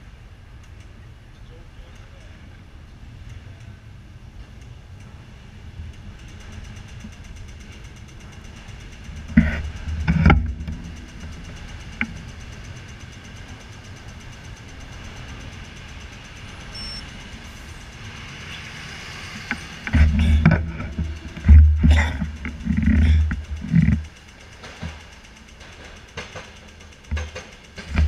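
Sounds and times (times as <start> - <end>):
traffic hum: 0.0 - 28.0
cars passing close by: 10.2 - 24.9.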